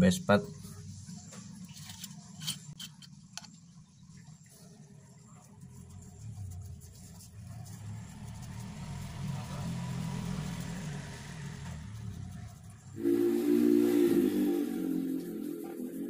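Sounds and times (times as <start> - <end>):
vehicle engine: 5.2 - 16.0
loud steady-pitched tone: 13.0 - 16.0.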